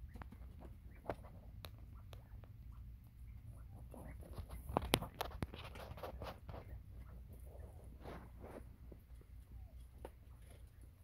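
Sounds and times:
quail pecking seed: 0:00.0 - 0:11.0
scratching through dry straw: 0:03.8 - 0:09.1.

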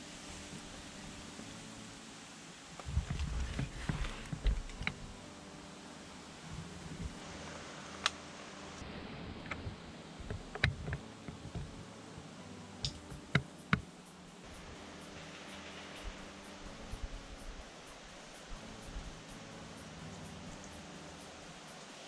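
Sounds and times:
rustling of gear: 0:02.8 - 0:05.0.

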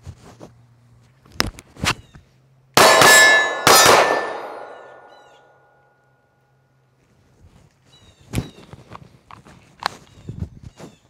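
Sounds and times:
pistol shots: 0:02.8 - 0:05.3
steel target ringing: 0:02.8 - 0:05.5.

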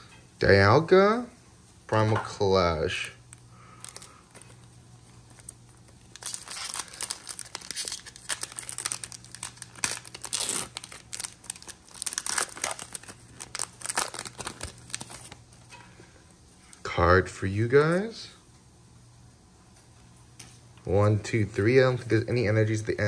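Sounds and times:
foil wrapper crinkling and tearing: 0:02.9 - 0:15.4.

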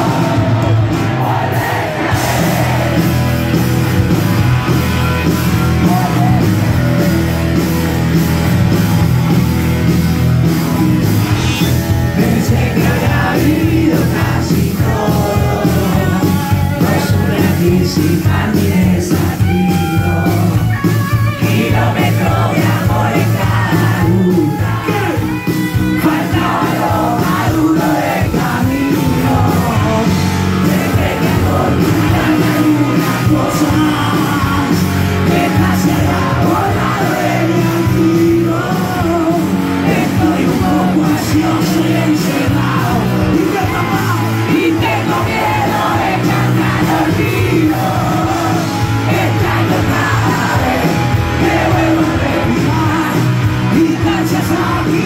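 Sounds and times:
drum kit: 0:00.0 - 0:55.0
electric bass: 0:00.0 - 0:55.0
electric guitars: 0:00.0 - 0:55.0
man singing: 0:11.3 - 0:55.0.

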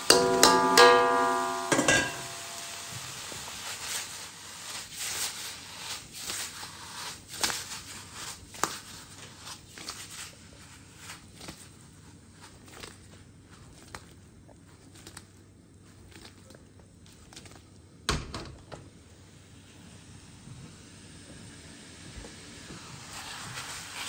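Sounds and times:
metal spatula scraping pan: 0:00.0 - 0:03.3
beef sizzling in a wok: 0:00.0 - 0:11.2, 0:19.2 - 0:24.0.

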